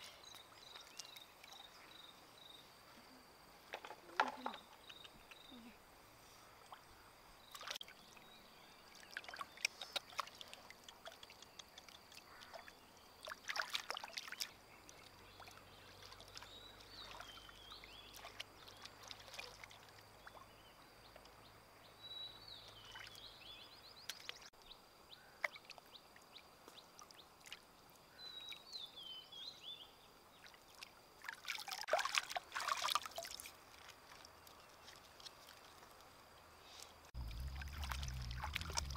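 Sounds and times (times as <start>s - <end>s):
stream water splashing: 6.5s - 21.3s, 22.5s - 24.6s, 25.3s - 28.1s, 30.3s - 38.9s.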